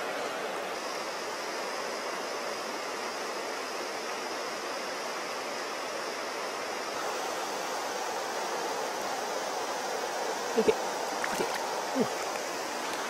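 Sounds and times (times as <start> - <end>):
stream flowing over rocks: 7.0 - 13.0.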